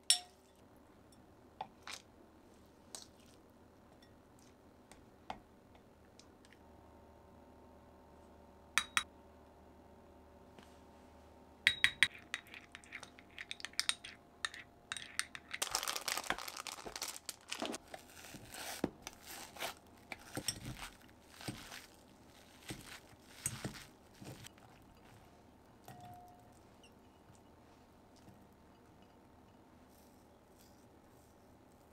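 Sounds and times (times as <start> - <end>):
crinkling and rustling: 15.4 - 25.4.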